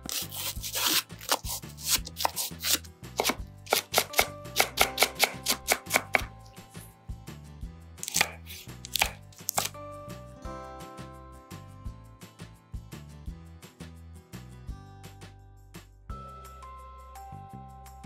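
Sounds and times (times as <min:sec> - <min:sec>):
knife chopping on wooden board: 0:00.0 - 0:06.8, 0:08.0 - 0:09.7.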